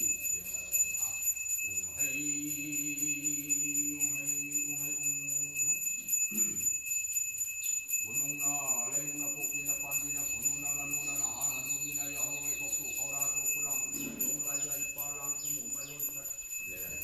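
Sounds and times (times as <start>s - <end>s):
small hand bell ringing: 0.0s - 17.0s
person chanting: 1.8s - 6.6s, 8.1s - 17.0s.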